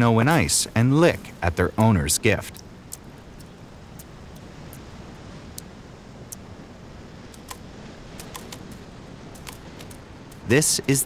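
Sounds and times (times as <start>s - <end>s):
low wind: 0.0s - 11.0s
sharp clicks: 7.3s - 7.6s, 8.2s - 8.8s.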